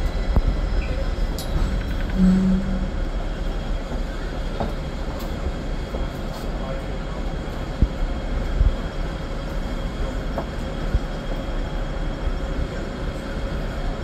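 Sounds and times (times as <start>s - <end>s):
electric tram humming: 0.0s - 14.0s
dull low thumps: 1.7s - 3.5s.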